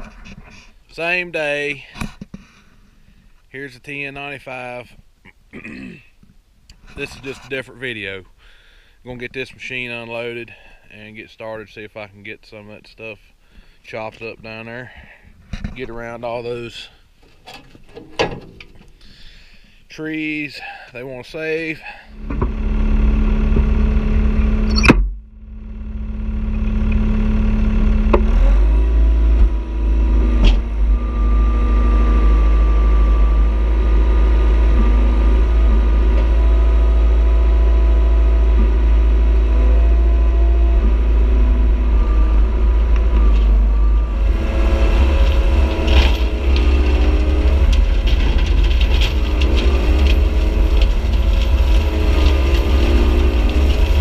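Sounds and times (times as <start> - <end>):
diesel engine running under load: 21.8 - 54.0
hydraulic brush cutter: 26.0 - 54.0.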